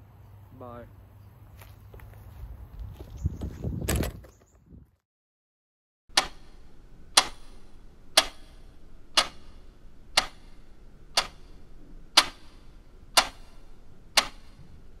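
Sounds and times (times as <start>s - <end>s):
sharp even ticking: 6.1s - 14.6s.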